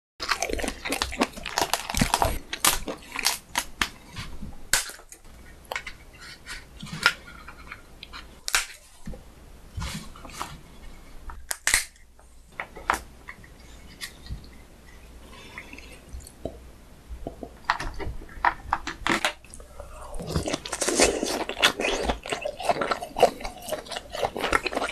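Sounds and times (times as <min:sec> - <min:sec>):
lobster shell cracking: 0:00.2 - 0:04.0, 0:04.7 - 0:06.0, 0:11.5 - 0:12.0.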